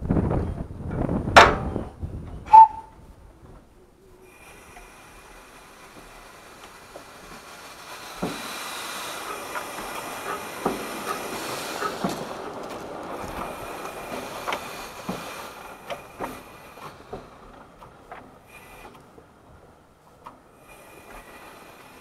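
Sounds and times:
train wheels clanking on rails: 3.5 - 22.0
steam hissing: 4.0 - 19.4, 20.5 - 22.0.

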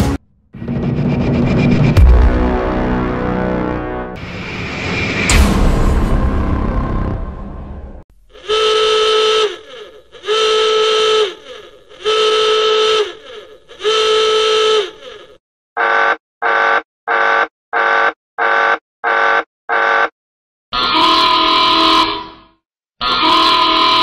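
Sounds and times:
long pitched alarm blasts: 8.4 - 15.2, 15.8 - 20.1, 20.8 - 22.4, 23.1 - 24.0.

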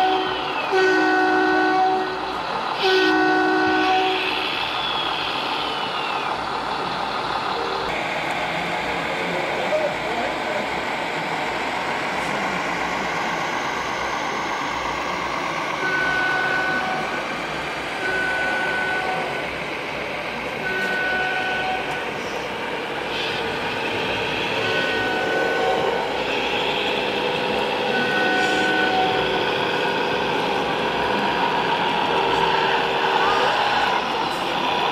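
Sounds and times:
steady background noise: 0.0 - 34.9.

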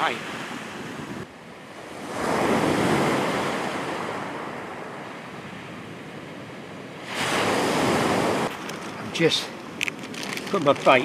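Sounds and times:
sea waves breaking on beach: 0.0 - 11.0.

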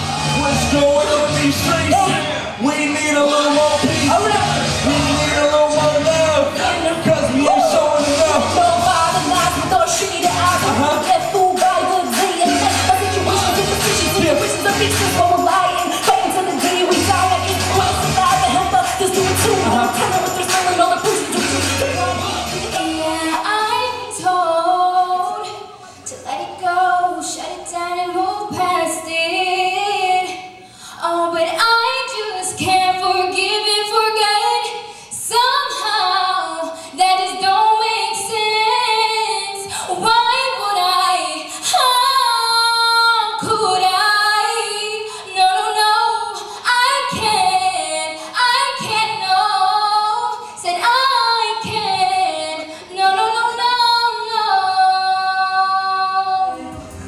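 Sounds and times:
girl singing into a microphone: 22.8 - 56.7.

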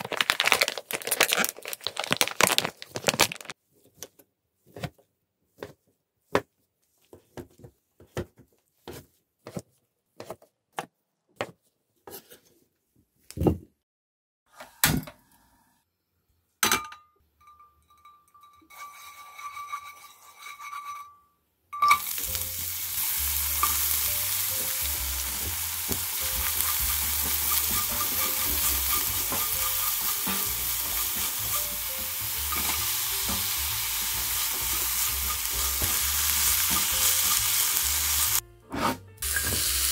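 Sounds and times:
spatula stirring in pan: 18.4 - 21.1, 22.1 - 38.4
onion sizzling in oil: 21.9 - 38.4, 39.2 - 39.9.

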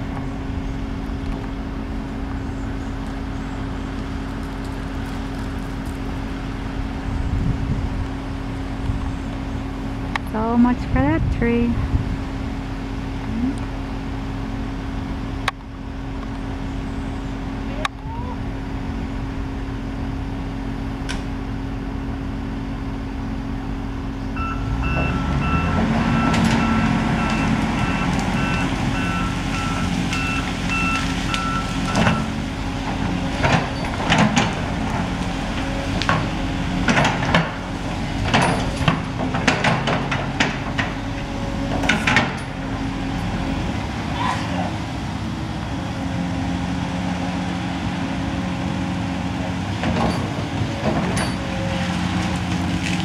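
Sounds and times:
excavator diesel engine running: 0.0 - 53.0
tree limbs cracking and snapping: 3.9 - 6.4, 26.3 - 39.3, 51.9 - 53.0
travel alarm beeping: 24.4 - 32.3.

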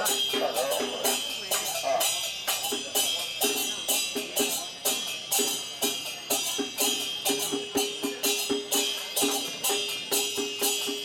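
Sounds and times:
cymbals and gongs struck: 0.0 - 11.0.

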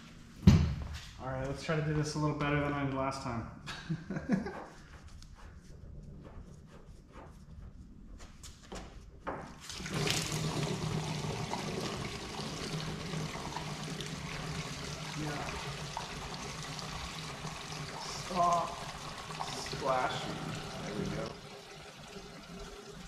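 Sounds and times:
gasoline pouring into can: 9.6 - 23.0.

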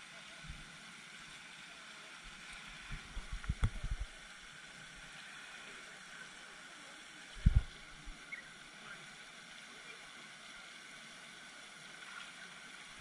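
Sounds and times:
fountain spray hissing: 3.1 - 13.0
thumps on microphone: 7.4 - 7.7.

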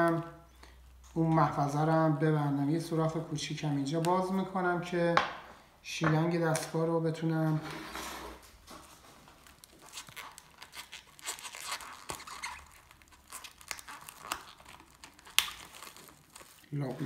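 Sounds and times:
cling film crinkling and tearing: 7.8 - 17.0.

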